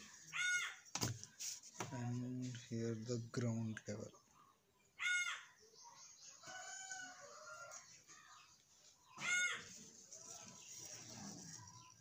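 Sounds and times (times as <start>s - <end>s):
chickens calling: 0.0s - 1.0s, 4.0s - 12.0s.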